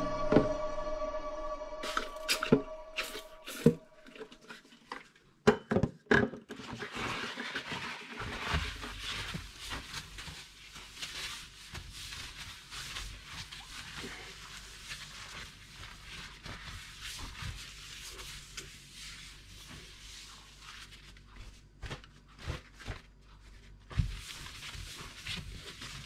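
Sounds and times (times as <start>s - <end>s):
cloth wiping glass: 0.0s - 4.2s.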